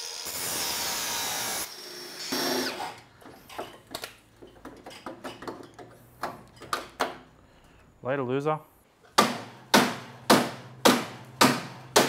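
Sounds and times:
angle grinder cutting sheet steel: 0:00.0 - 0:02.8.

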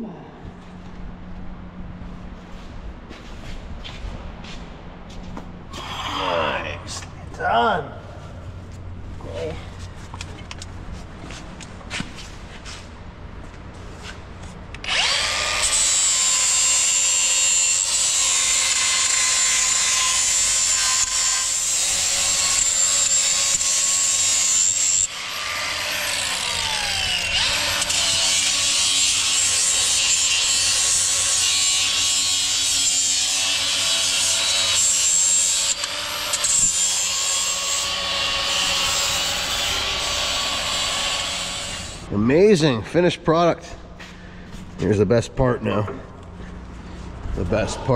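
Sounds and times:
angle grinder on steel: 0:14.8 - 0:42.1.

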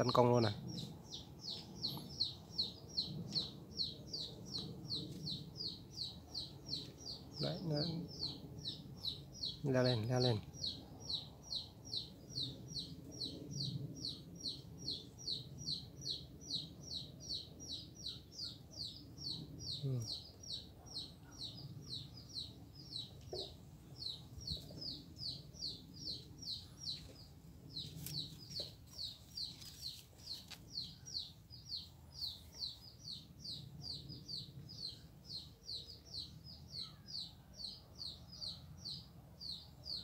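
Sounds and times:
small bird chirping: 0:00.0 - 0:40.0.

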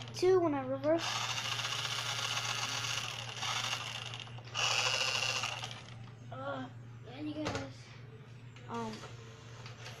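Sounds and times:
toy car motor whirring: 0:01.0 - 0:06.0.

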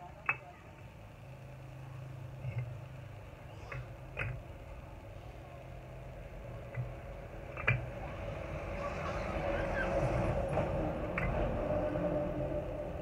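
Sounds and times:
low engine hum: 0:00.0 - 0:13.0
bricks knocking together: 0:06.7 - 0:08.0.

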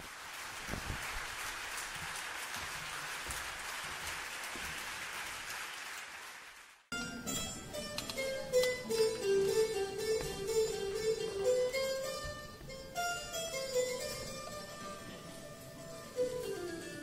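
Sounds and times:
audience applause: 0:00.0 - 0:06.9
plucked string ensemble music: 0:06.9 - 0:17.0.

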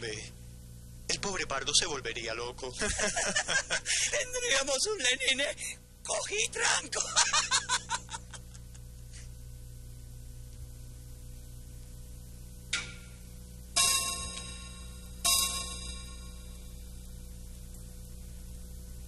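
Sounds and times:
low hum: 0:00.0 - 0:04.0, 0:07.3 - 0:19.0
laughter: 0:02.8 - 0:04.1, 0:07.0 - 0:08.9
bell-like chime strikes: 0:13.8 - 0:16.8.

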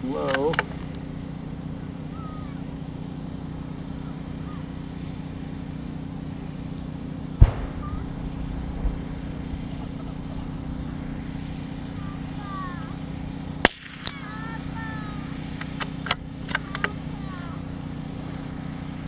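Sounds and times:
steady low hum: 0:00.0 - 0:19.0
rifle shot: 0:07.4 - 0:09.1, 0:13.6 - 0:14.3.

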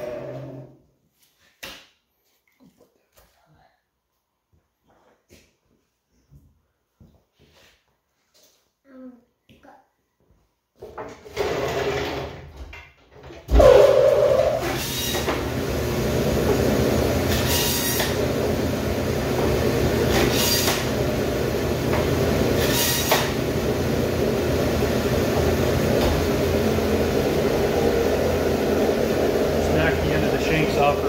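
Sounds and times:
electric band saw running: 0:00.0 - 0:00.7, 0:13.6 - 0:31.0.

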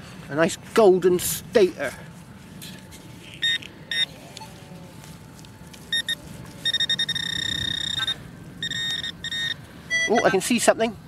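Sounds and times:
metal detector beeps: 0:03.4 - 0:04.1, 0:05.9 - 0:10.5.

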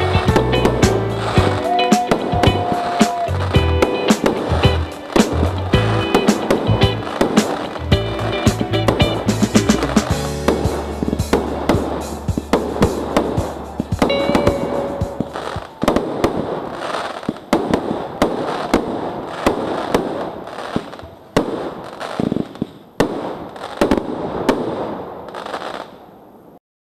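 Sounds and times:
background music: 0:00.0 - 0:16.0
fireworks banging: 0:00.0 - 0:26.2
fireworks crackling: 0:00.0 - 0:26.6.

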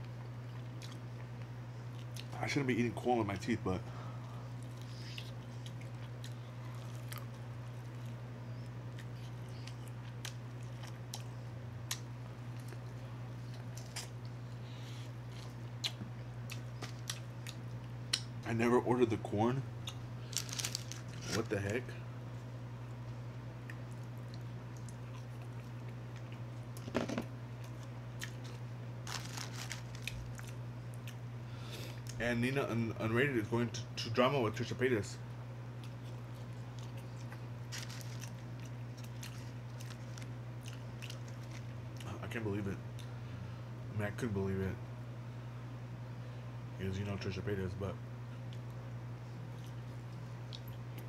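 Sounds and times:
chewing and crunching corn: 0:00.0 - 0:02.4, 0:04.6 - 0:18.3, 0:19.8 - 0:21.8, 0:23.6 - 0:26.9, 0:27.6 - 0:31.2, 0:35.8 - 0:42.2
steady low hum: 0:00.0 - 0:51.0.

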